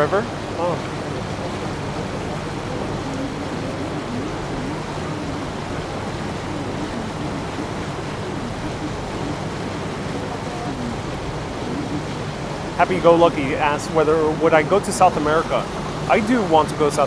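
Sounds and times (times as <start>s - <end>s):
boat engine hum: 0.0s - 17.0s
wind and water rushing: 0.0s - 17.0s.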